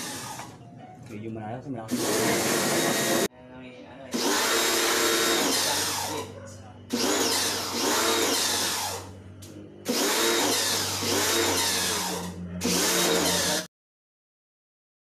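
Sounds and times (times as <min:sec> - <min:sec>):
motor hum: 0:01.9 - 0:03.3, 0:04.1 - 0:13.7.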